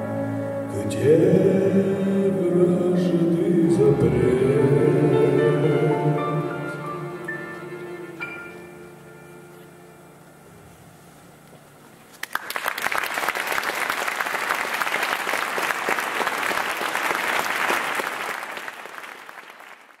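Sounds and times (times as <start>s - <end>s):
audience applauding: 12.1s - 20.0s.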